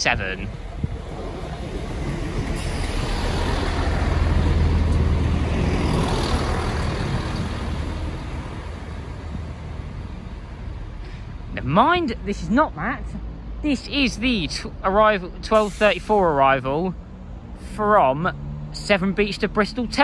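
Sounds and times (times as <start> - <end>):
diesel train engine drone: 0.0 - 20.0
wheel-on-rail noise: 0.5 - 10.2.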